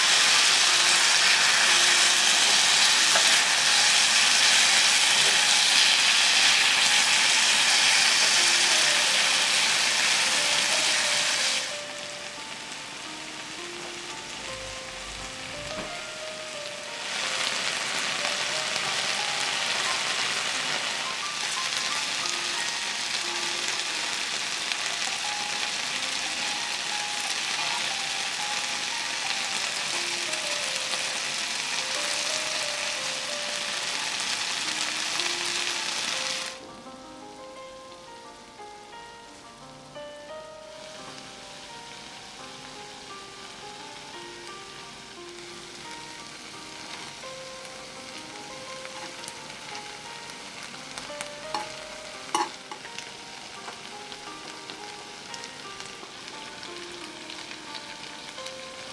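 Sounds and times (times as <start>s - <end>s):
food sizzling in oil: 0.0s - 36.6s, 37.2s - 58.9s.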